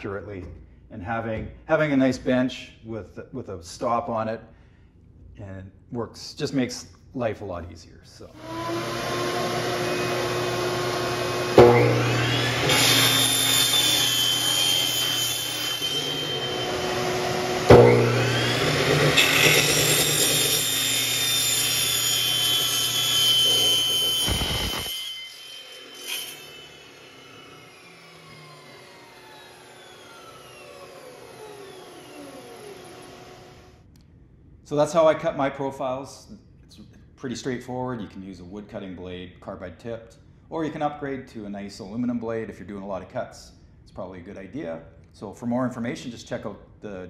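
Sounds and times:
saw blade cutting aluminum: 8.4s - 33.4s
saw motor spinning up: 8.4s - 33.7s.

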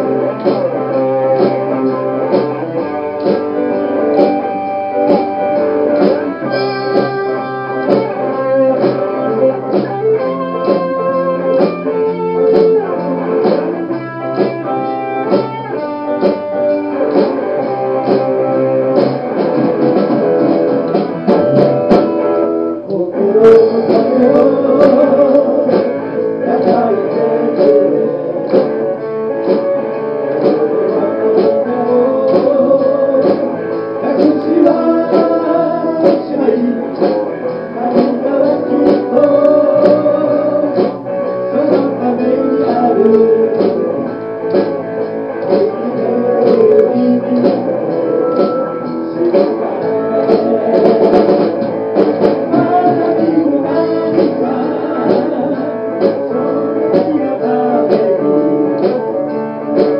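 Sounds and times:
live band playing: 0.0s - 59.9s
voices singing: 22.8s - 59.9s.

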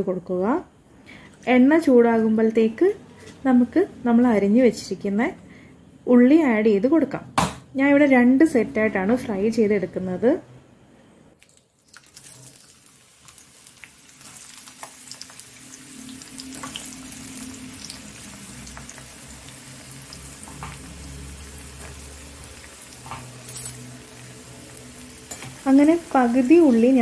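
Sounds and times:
oil crackles: 11.4s - 17.2s
onions sizzling in hot oil: 11.9s - 27.0s.

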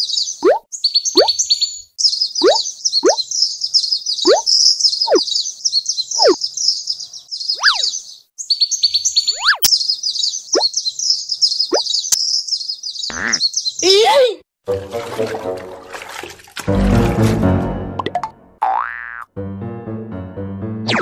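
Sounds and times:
high bird chirping: 0.0s - 14.0s.

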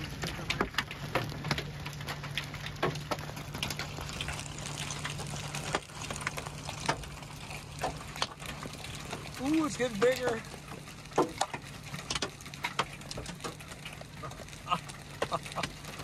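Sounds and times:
hailstones striking vehicle: 0.0s - 16.0s
rain hiss: 0.0s - 16.0s.

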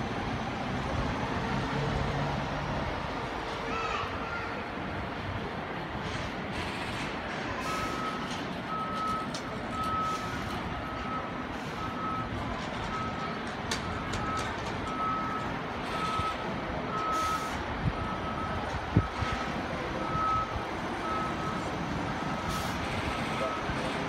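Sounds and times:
fire engine running: 0.0s - 24.0s
street noise: 0.0s - 24.0s
reverse alarm beeping: 7.7s - 19.4s, 20.0s - 23.8s.

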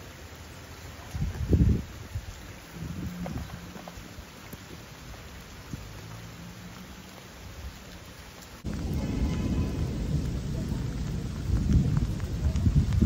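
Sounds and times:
rain falling: 0.0s - 13.0s
low rumble: 8.6s - 13.0s.

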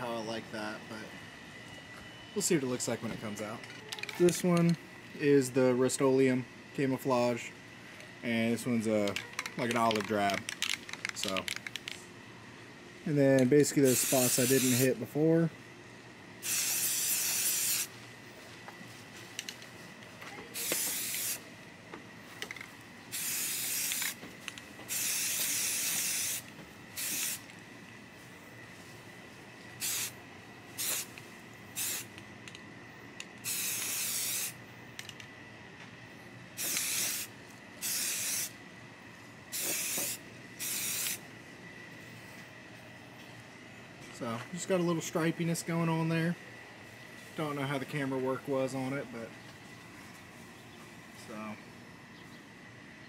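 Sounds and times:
spray paint can hissing: 13.8s - 14.9s, 16.4s - 17.9s, 20.6s - 21.4s, 23.1s - 24.2s, 24.9s - 27.5s, 29.8s - 30.2s, 30.8s - 32.2s, 33.4s - 34.6s, 36.6s - 38.5s, 39.5s - 41.2s.

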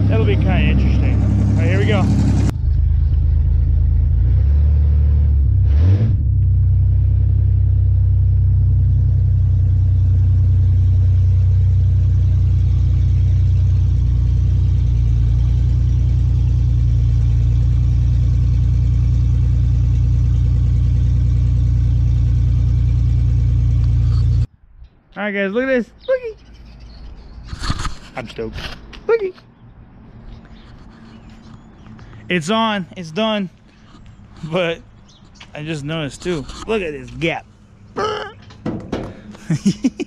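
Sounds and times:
truck engine running low: 0.0s - 24.5s.

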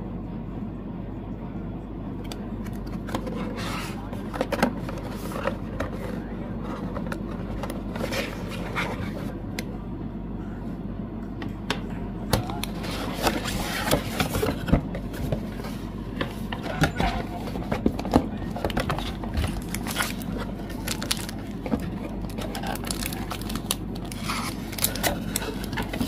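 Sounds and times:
steady low hum: 0.0s - 26.0s
packaging handled by hand: 12.5s - 26.0s.

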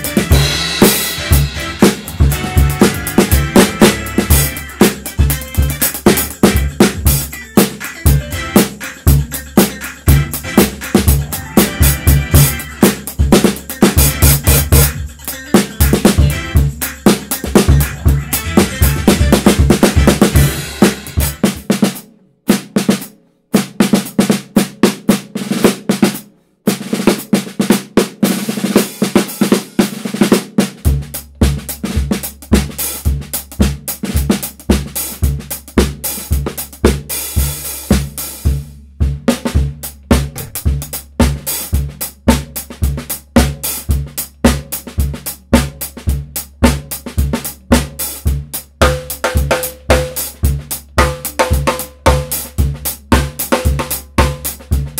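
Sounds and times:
steady low beat: 0.0s - 7.3s, 8.1s - 13.4s, 17.6s - 21.7s, 38.6s - 41.2s
snare drum strokes and rolls: 0.0s - 15.0s, 15.6s - 54.9s
hi-hat: 0.0s - 19.0s
bass drum: 0.0s - 22.0s, 30.7s - 54.9s.

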